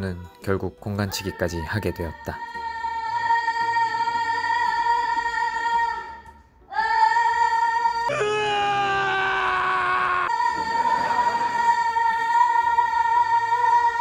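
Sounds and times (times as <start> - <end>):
music with held high note: 8.0 - 11.6
rough held sound falling in pitch: 8.1 - 10.4.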